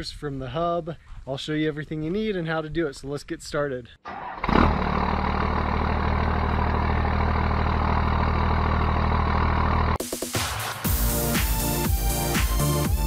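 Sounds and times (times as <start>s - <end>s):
truck engine idling: 4.1s - 10.0s.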